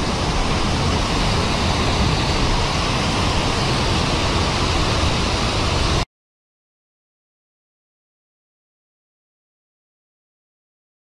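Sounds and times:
stream rushing over rocks: 0.0s - 6.0s.

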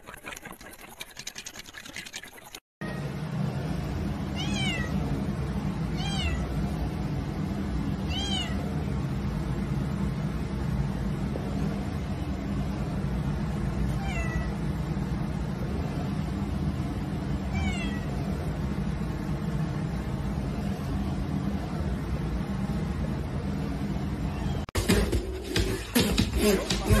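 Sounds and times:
cat meowing: 4.4s - 4.9s, 6.0s - 6.4s, 8.1s - 8.6s, 14.0s - 14.5s, 17.5s - 18.1s.

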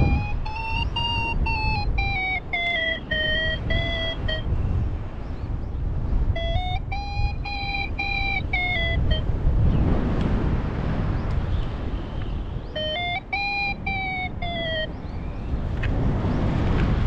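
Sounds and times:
variometer beeping: 0.0s - 4.5s, 6.4s - 9.3s, 12.7s - 15.0s
wind rumble on microphone: 0.0s - 17.0s.

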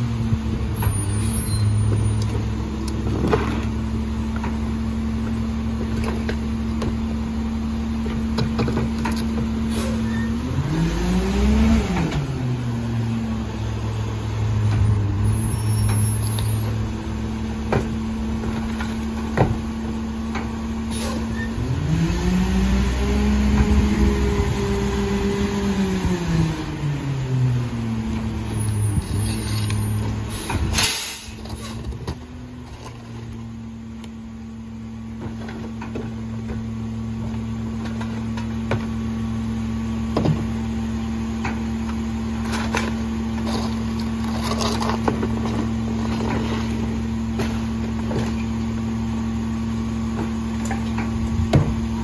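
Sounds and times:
garbage truck engine revving: 0.0s - 33.4s.

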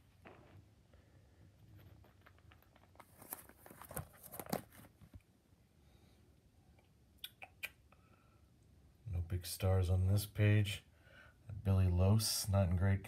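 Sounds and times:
plastic sleeve crinkling: 1.7s - 5.3s.

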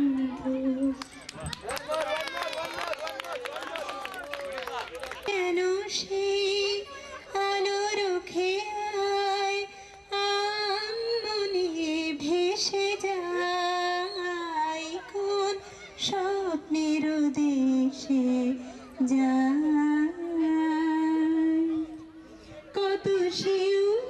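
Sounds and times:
woman singing: 0.0s - 1.0s, 5.3s - 22.0s, 22.7s - 24.0s.

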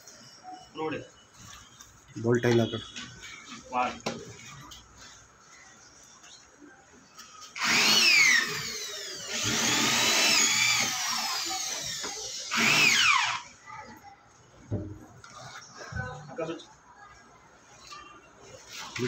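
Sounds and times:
electric drill drilling plastic pipe: 7.6s - 13.5s.

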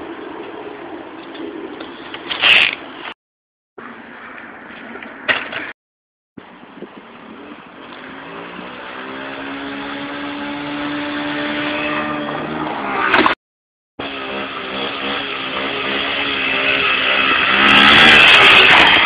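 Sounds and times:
minibike engine approaching: 6.4s - 13.3s.

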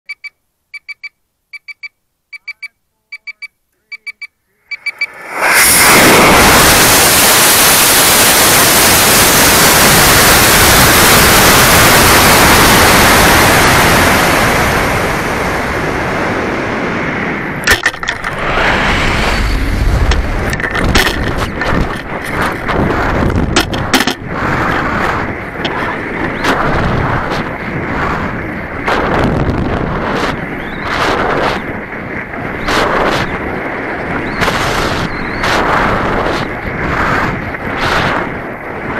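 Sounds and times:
air rushing over microphone: 4.8s - 38.9s
rocket motor rushing hiss: 5.0s - 15.1s
sharp knocks and crackles: 17.6s - 18.5s, 20.0s - 27.6s.

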